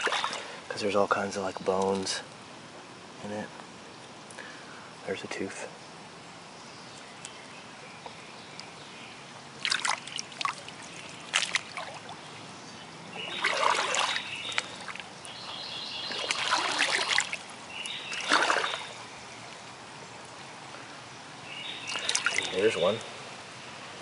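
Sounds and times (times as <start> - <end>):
feet splashing through water: 0.0 - 0.7, 9.6 - 12.4, 13.2 - 19.0, 21.8 - 22.6
creek water trickling: 0.0 - 24.0.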